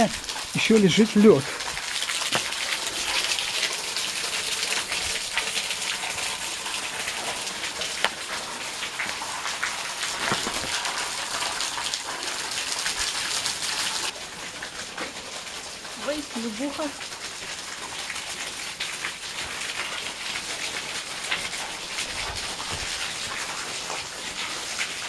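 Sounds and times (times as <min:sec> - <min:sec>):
water dripping onto rock: 0:00.0 - 0:13.2.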